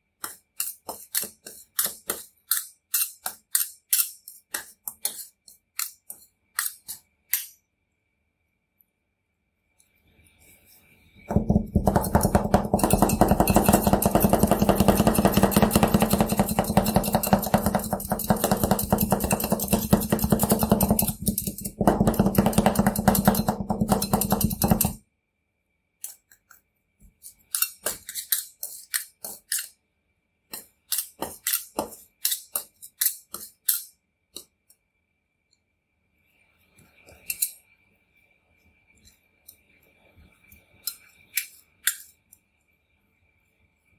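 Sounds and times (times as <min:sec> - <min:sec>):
spatula taps and scrapes: 0:00.2 - 0:07.5, 0:11.2 - 0:25.0, 0:26.0 - 0:29.7, 0:30.5 - 0:34.6.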